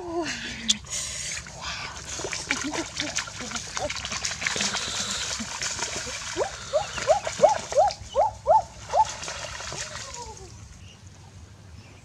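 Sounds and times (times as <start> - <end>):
feet splashing in muddy water: 1.4 - 8.1, 8.8 - 10.5.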